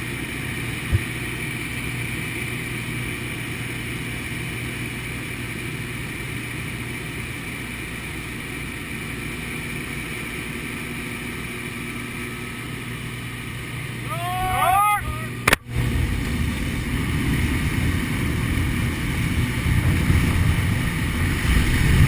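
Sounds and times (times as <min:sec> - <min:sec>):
plane engine drone in cabin: 0:00.0 - 0:22.0.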